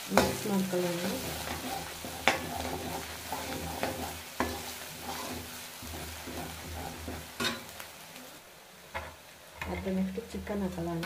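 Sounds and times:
onions sizzling in oil: 0.0 - 11.0
ladle scraping pan: 1.2 - 7.7.

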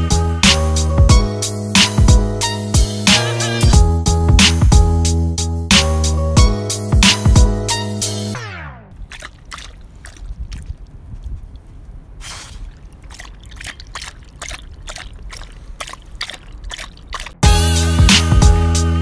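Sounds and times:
background music: 0.0 - 8.6, 17.4 - 19.0
dog lapping water: 9.0 - 17.4.

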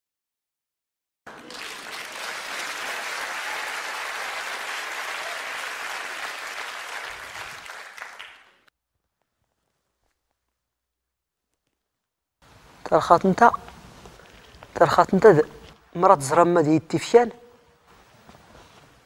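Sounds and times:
audience applauding: 1.3 - 8.7.

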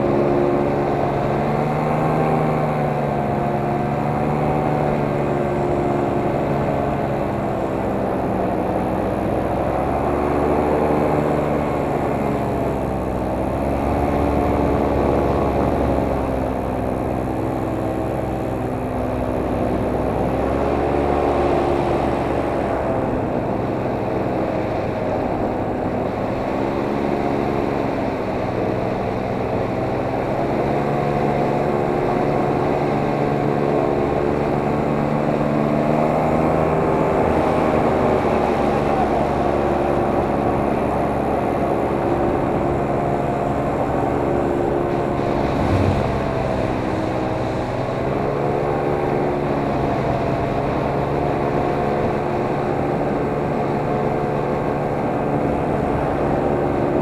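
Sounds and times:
drone propellers whirring: 44.4 - 48.6.

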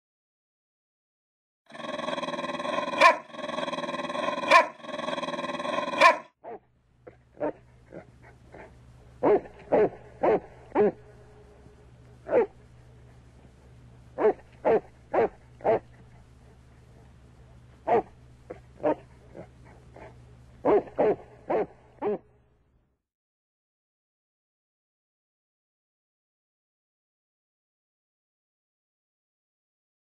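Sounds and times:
dog barking: 2.9 - 3.4, 4.2 - 4.9, 5.7 - 6.6, 7.4 - 11.2, 12.2 - 12.6, 14.2 - 15.9, 17.8 - 22.2.

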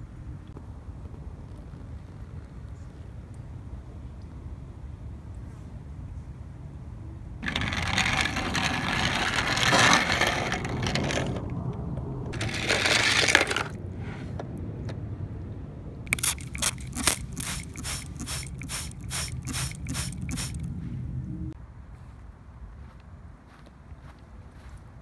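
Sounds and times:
toy cars scraping on plastic track: 7.4 - 11.5, 12.4 - 14.3.

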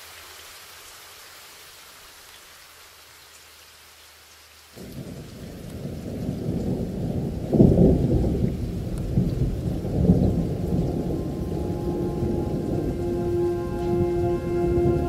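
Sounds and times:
rain: 0.0 - 15.0
thunder rolls: 4.8 - 15.0
held music tones: 10.3 - 15.0.

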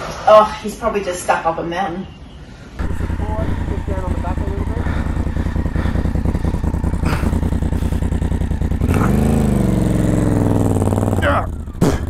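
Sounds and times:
motorcycle engine idling and revving: 2.8 - 12.0.

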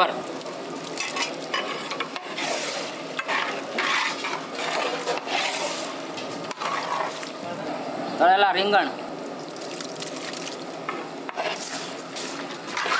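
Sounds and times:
low sizzle: 0.0 - 12.9
spoon scraping a pan: 1.0 - 7.3, 11.3 - 12.9.

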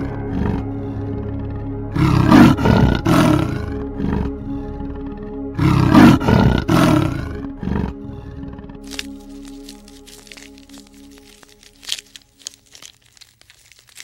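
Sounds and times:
big cat roaring: 0.0 - 1.1, 1.9 - 4.8, 5.5 - 9.1
background music: 0.0 - 14.0.

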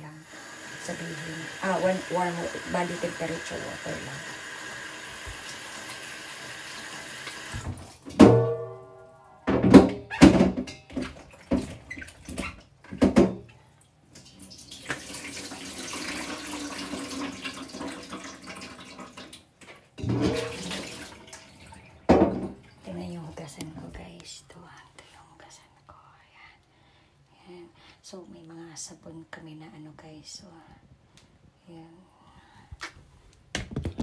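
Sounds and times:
tap water running into sink: 0.2 - 8.2, 14.2 - 22.9.

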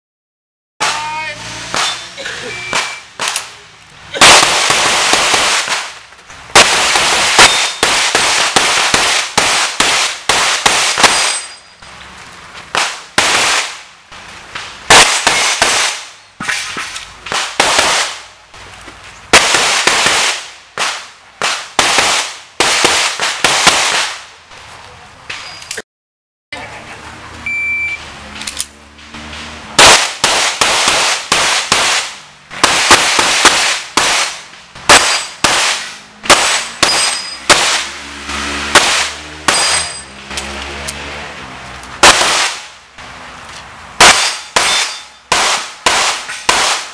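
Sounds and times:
shot timer beep: 2.5 - 3.1, 27.4 - 28.0.

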